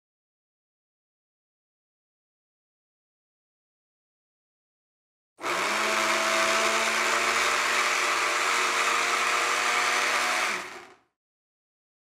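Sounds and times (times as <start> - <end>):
blender motor whirring: 5.4 - 11.1.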